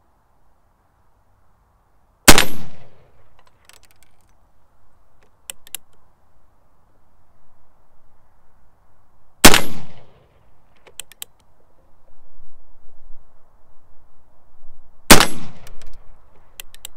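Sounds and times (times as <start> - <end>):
faint clicks: 5.2 - 6.0, 10.8 - 11.5, 15.6 - 16.9.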